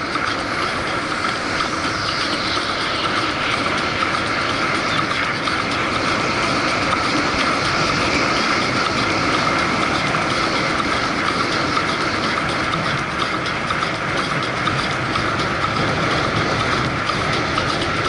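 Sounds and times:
faint regular ticking: 0.0s - 18.0s.

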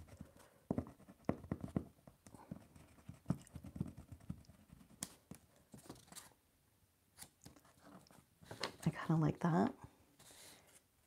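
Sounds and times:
pencil tapping and rubbing on card: 0.0s - 6.0s.

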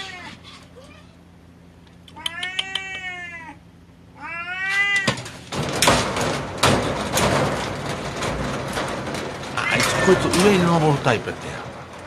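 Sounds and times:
cat meowing: 0.0s - 1.2s, 2.1s - 3.6s, 4.2s - 5.2s
rustling and knocking: 5.0s - 12.0s.

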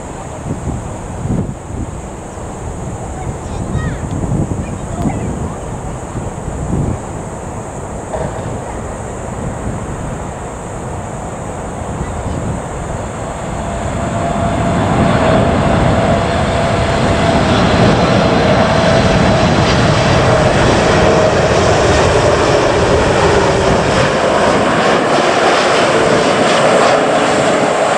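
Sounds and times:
jet engine roar and whine: 0.0s - 27.9s.

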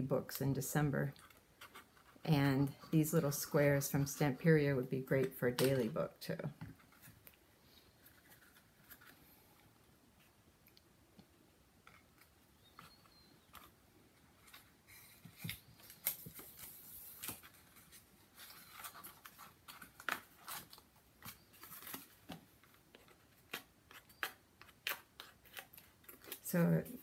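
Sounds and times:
cardboard rustling: 6.7s - 9.5s, 11.8s - 27.0s.

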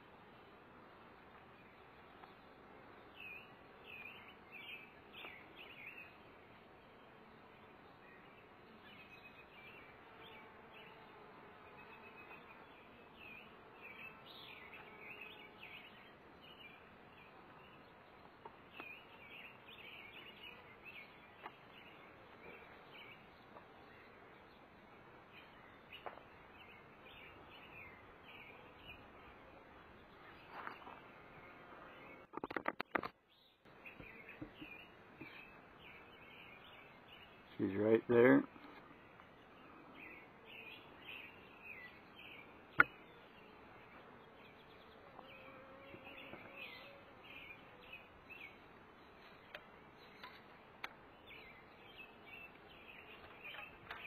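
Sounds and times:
small birds chirping: 0.0s - 54.0s
bees buzzing: 42.2s - 50.5s.

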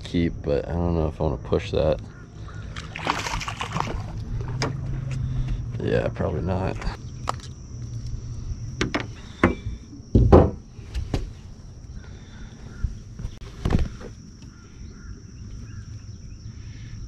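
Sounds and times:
knocks and thumps on boat deck: 3.6s - 5.6s, 8.8s - 11.4s.

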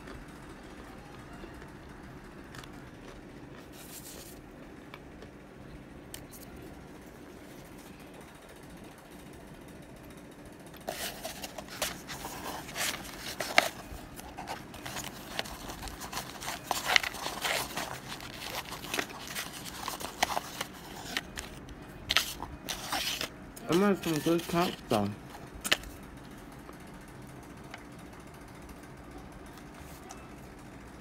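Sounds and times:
cornstarch chunks crunching: 10.8s - 25.8s.

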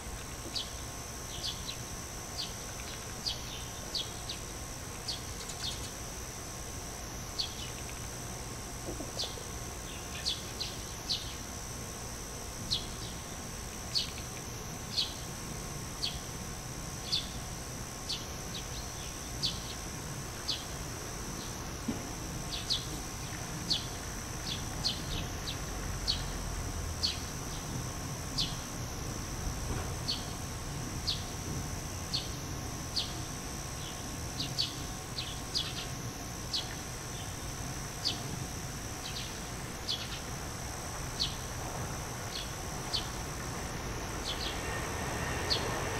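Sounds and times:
faint high-pitched whine: 0.0s - 45.9s
small birds chirping: 0.5s - 1.8s, 2.4s - 4.4s, 5.0s - 6.0s, 7.4s - 8.0s, 9.1s - 11.5s, 12.7s - 15.2s, 16.0s - 16.3s, 17.0s - 17.4s, 18.1s - 19.8s, 22.5s - 26.4s, 30.0s - 30.4s, 31.1s - 31.3s, 32.1s - 33.2s, 33.8s - 38.3s, 39.0s - 40.3s, 41.2s - 41.5s, 42.3s - 43.2s, 44.2s - 44.7s.

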